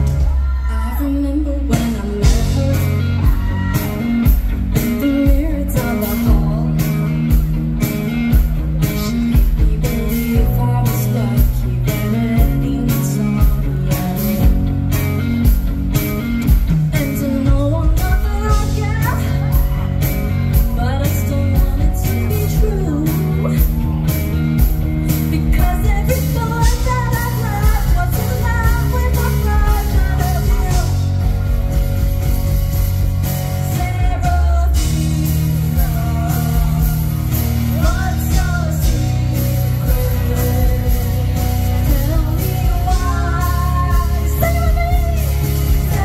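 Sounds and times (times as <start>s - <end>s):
woman singing: 0.0s - 7.5s, 8.3s - 31.4s, 33.2s - 46.0s
live pop-rock band: 0.0s - 46.0s.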